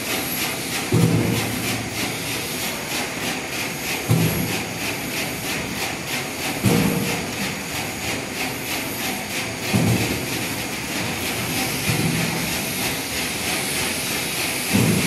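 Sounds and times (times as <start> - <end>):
heavy thump: 14.7 - 15.0.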